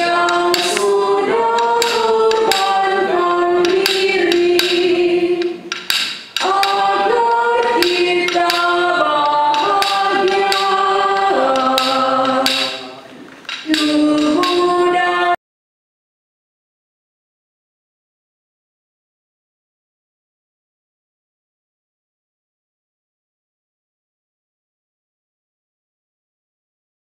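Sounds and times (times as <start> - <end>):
church choir singing a hymn: 0.0 - 5.7, 6.4 - 13.1.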